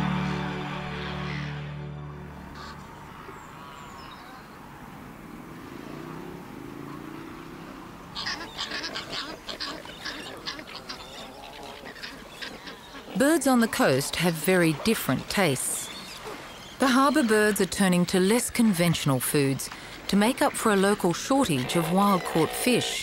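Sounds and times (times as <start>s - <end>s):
pelicans clattering and calling: 8.0s - 23.0s.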